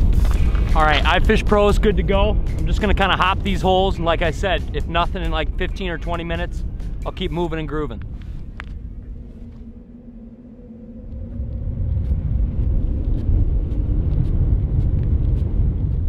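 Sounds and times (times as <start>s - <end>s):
faint steady hum: 0.0s - 16.0s
wind buffeting microphone: 0.0s - 16.0s.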